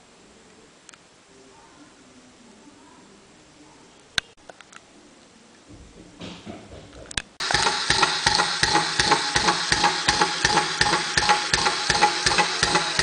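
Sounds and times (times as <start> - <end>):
plastic gears and legs knocking: 7.0 - 13.0
small electric motor whirring: 7.4 - 13.0.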